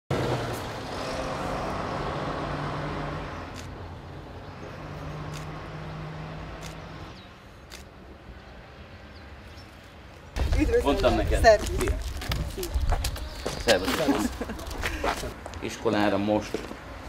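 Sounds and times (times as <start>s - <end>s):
vehicle engine passing: 0.1s - 9.0s.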